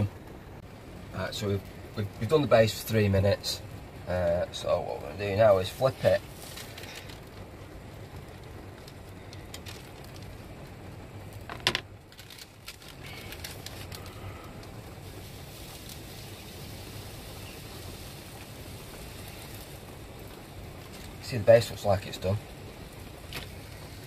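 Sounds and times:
light clicks and rustles: 8.8 - 10.4, 11.4 - 14.8.

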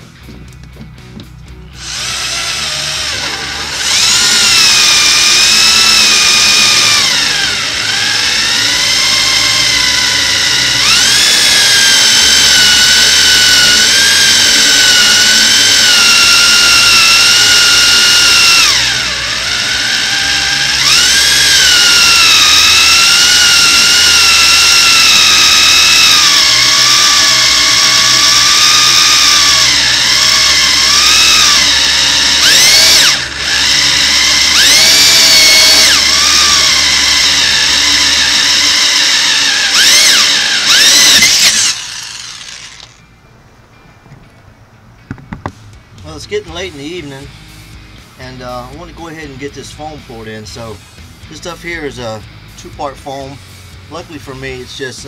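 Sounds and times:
power drill boring through fiberglass: 1.8 - 43.0.

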